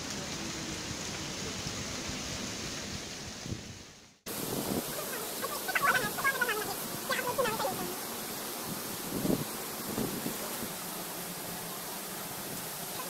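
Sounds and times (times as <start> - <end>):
running water pouring: 4.3 - 8.0
people's voices: 4.9 - 8.0.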